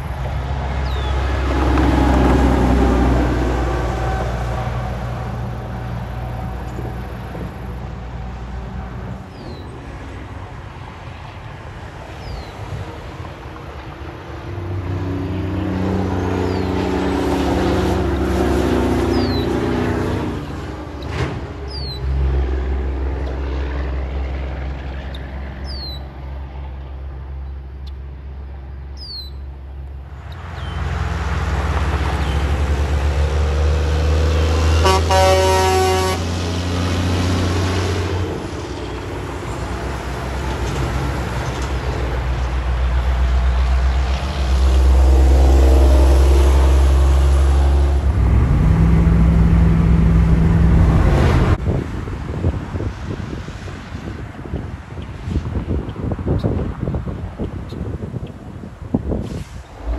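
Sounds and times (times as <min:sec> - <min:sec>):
trucks passing on highway: 0:00.0 - 0:59.9
truck air horn: 0:34.5 - 0:36.5.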